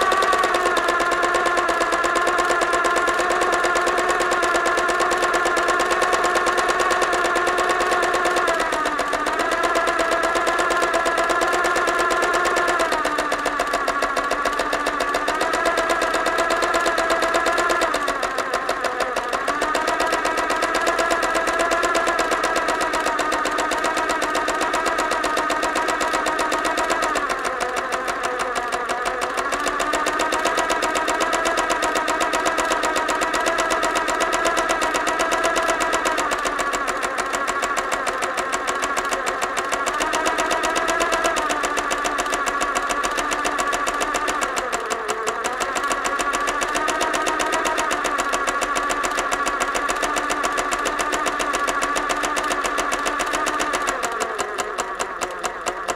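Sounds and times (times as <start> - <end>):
sewing machine running: 0.0 - 55.9.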